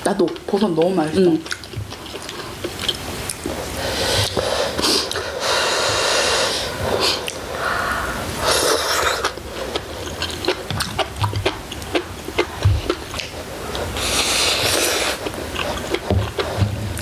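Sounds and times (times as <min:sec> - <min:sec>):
chewing: 0:00.2 - 0:05.3, 0:08.6 - 0:17.0
noisy slurping: 0:00.3 - 0:17.0.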